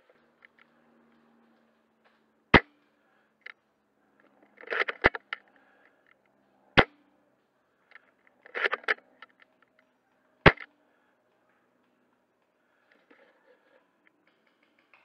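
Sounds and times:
rifle bolt clacking: 4.6s - 5.4s, 8.4s - 9.4s
airsoft rifle shots: 6.8s - 7.0s, 10.4s - 10.7s.

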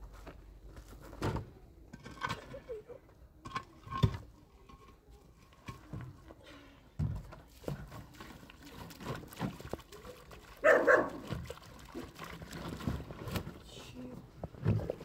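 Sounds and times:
puppy barking: 10.6s - 11.2s.

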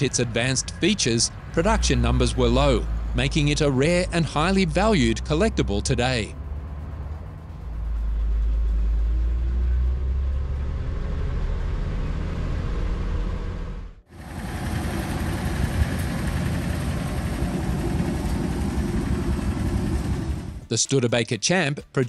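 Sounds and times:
pickup truck engine accelerating: 0.0s - 20.7s
pickup truck engine idling: 14.2s - 20.7s.

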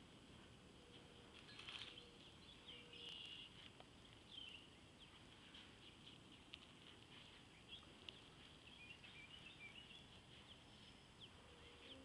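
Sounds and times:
low background hiss: 0.0s - 12.0s
small birds chirping: 0.4s - 12.0s.

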